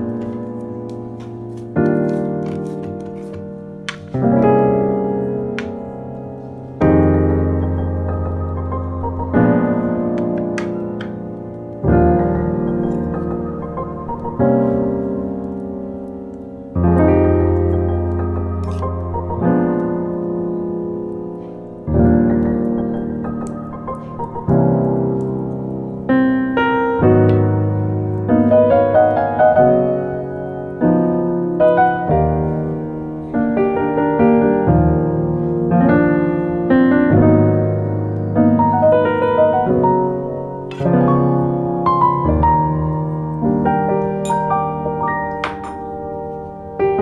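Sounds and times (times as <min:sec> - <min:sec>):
slow solo piano: 0:00.0 - 0:47.0.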